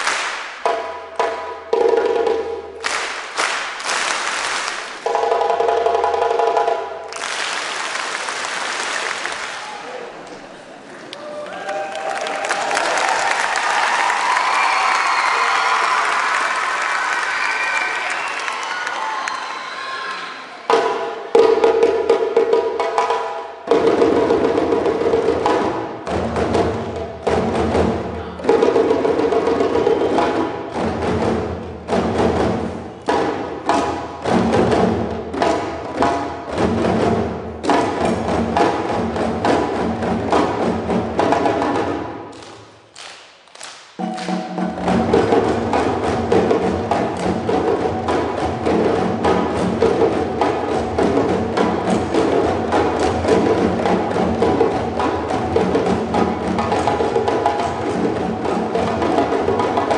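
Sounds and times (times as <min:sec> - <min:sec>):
djembe drums playing fast rhythm: 0:00.6 - 0:02.8, 0:05.0 - 0:07.1, 0:20.7 - 0:42.2, 0:44.0 - 0:59.9.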